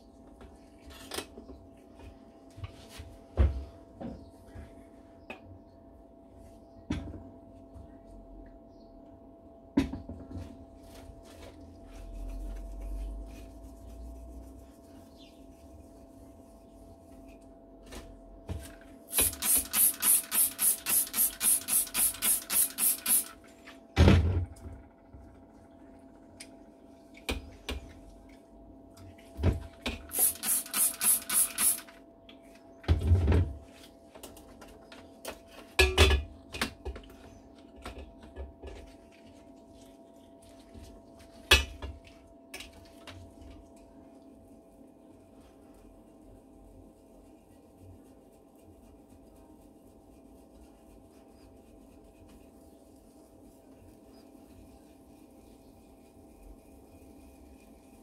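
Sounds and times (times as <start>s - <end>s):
rubbing strokes on metal: 19.1s - 23.3s, 30.1s - 31.8s.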